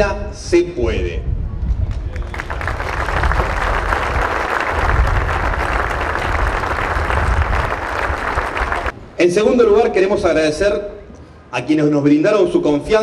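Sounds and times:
crowd applauding: 0:01.9 - 0:09.0.

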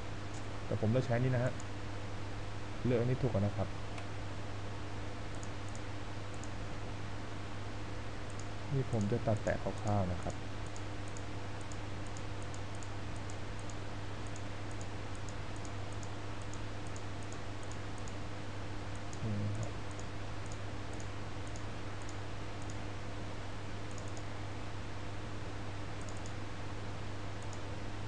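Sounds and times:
low electrical hum and hiss: 0:00.0 - 0:28.0
computer mouse clicking: 0:05.3 - 0:06.6, 0:08.3 - 0:18.2, 0:18.9 - 0:22.8, 0:23.9 - 0:24.3, 0:26.0 - 0:26.4, 0:27.4 - 0:27.7.

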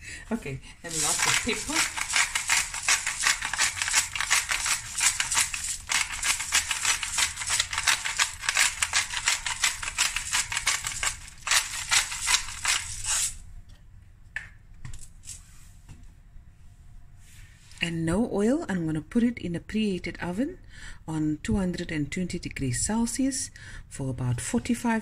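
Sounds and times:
pepper grinder crunching: 0:00.9 - 0:13.4.

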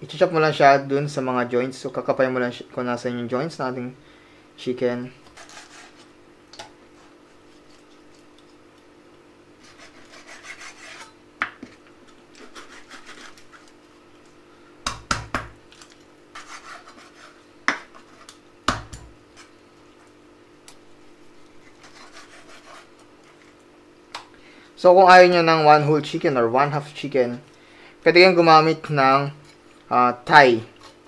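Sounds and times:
knife slicing through chicken: 0:05.3 - 0:06.1, 0:09.6 - 0:11.2, 0:12.4 - 0:13.7.

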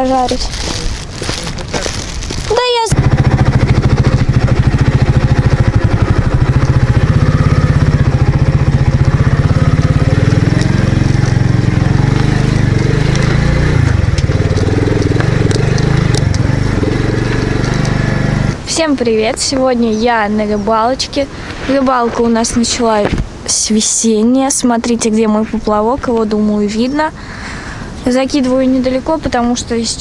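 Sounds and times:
motorcycle engine running: 0:01.9 - 0:18.9.

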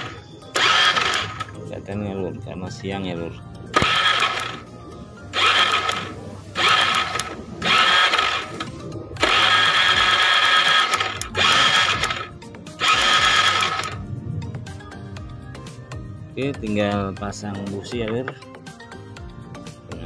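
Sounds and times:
scooter starter motor whirring: 0:00.0 - 0:01.6, 0:03.7 - 0:04.7, 0:05.3 - 0:14.0.

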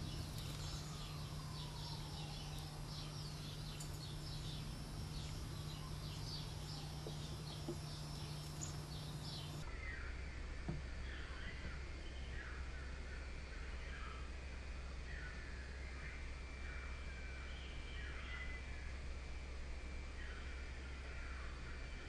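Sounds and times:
lower-pitched bird calls: 0:00.0 - 0:10.0
low hum: 0:00.0 - 0:22.0.

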